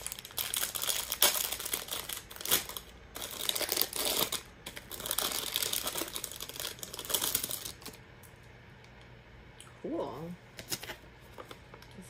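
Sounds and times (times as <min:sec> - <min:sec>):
plastic wrapper crinkling: 0:00.0 - 0:08.0.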